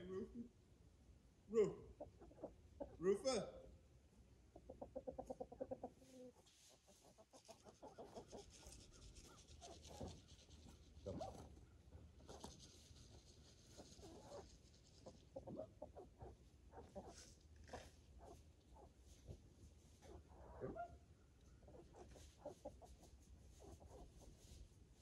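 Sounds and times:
chickens clucking: 1.9 - 3.0, 4.4 - 10.3, 13.6 - 19.3, 21.6 - 24.4.

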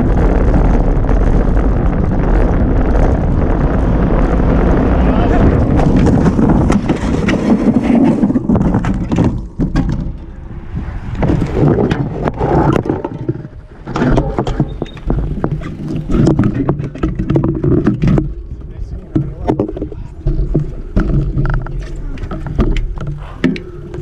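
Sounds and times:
bicycle scraping on road: 0.0 - 24.0
bike rattling and knocking: 5.5 - 10.5, 11.2 - 24.0.

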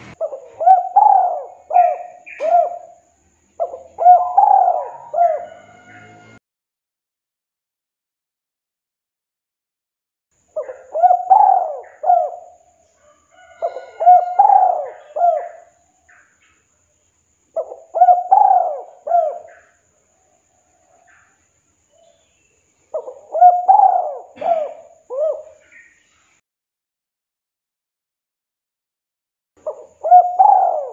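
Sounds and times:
dove cooing: 0.0 - 6.4, 10.6 - 16.1, 17.6 - 21.3, 22.9 - 25.8, 29.6 - 30.9.

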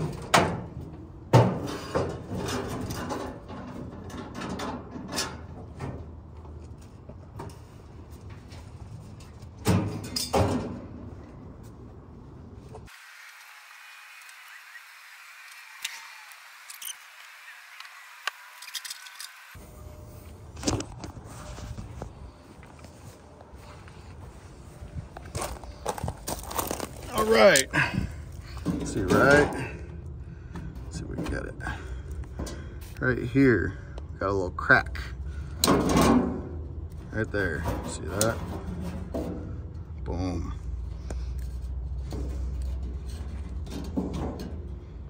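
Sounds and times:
sheet metal clanking and scraping: 0.0 - 6.3, 7.3 - 11.3, 27.8 - 32.9, 35.4 - 40.0, 41.6 - 45.0.

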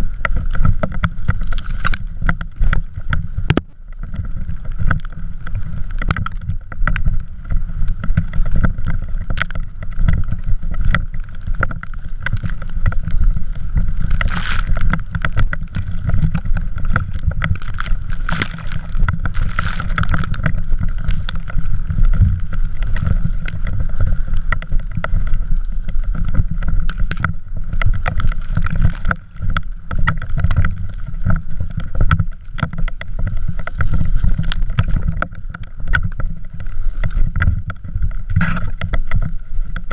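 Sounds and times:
wheels scraping over snow: 0.0 - 39.9
wind buffeting microphone: 0.8 - 39.8.

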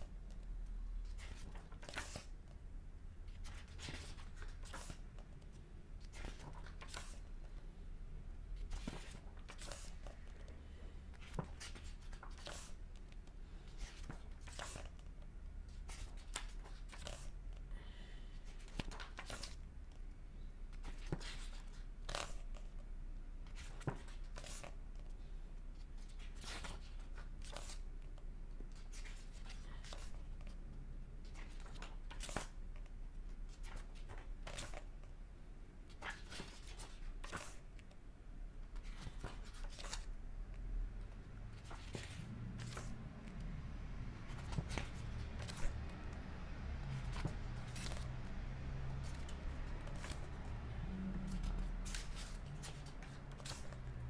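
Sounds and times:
low steady hum: 0.0 - 54.0
book pages turning: 1.0 - 2.5, 3.3 - 7.3, 8.6 - 10.5, 11.1 - 15.1, 15.7 - 17.6, 18.4 - 19.6, 20.7 - 22.8, 23.5 - 25.2, 25.8 - 30.6, 31.2 - 32.9, 33.5 - 35.1, 35.9 - 37.9, 38.7 - 40.2, 41.5 - 43.6, 44.2 - 46.2, 46.8 - 54.0.

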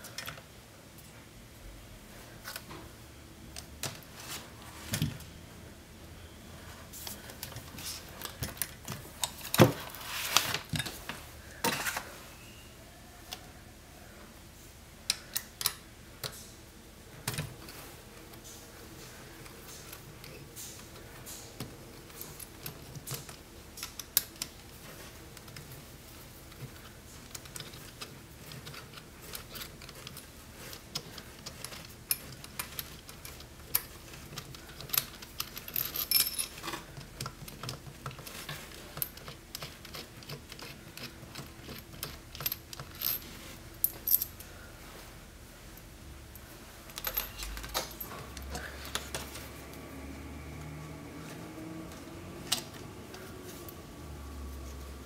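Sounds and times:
small metal clicks and scrapes: 26.5 - 43.3.

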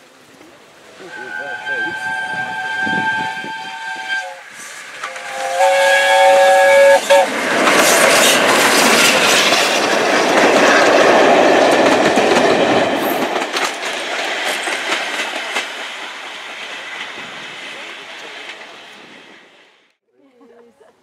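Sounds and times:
train coaches rumbling: 0.6 - 20.0
steam locomotive whistle: 1.0 - 7.4
wheels clicking over rail joints: 7.3 - 17.2.

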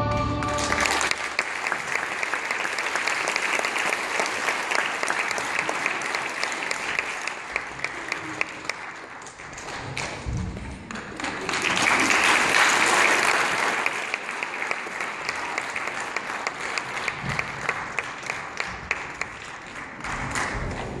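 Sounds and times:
audience applauding: 0.0 - 21.0.

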